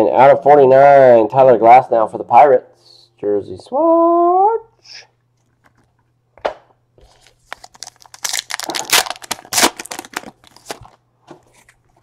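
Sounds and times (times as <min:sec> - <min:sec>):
plastic wrapper tearing and crinkling: 0:07.1 - 0:11.0.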